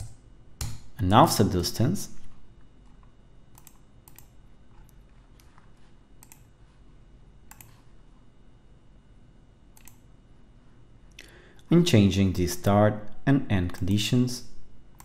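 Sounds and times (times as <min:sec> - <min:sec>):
keyboard and mouse clicks: 0:02.9 - 0:06.5, 0:07.5 - 0:07.8, 0:09.8 - 0:10.0.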